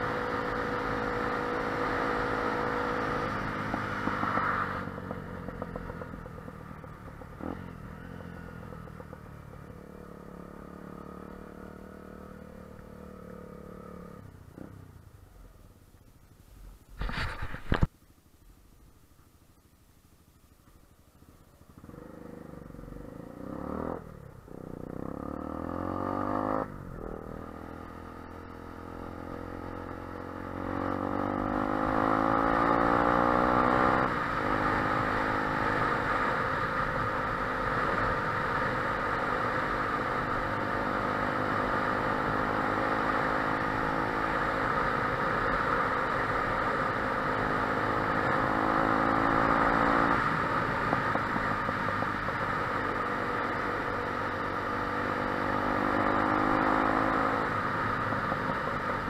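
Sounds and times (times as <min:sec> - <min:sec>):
motorcycle engine revving through gears: 0:00.0 - 0:15.1, 0:21.7 - 0:59.0.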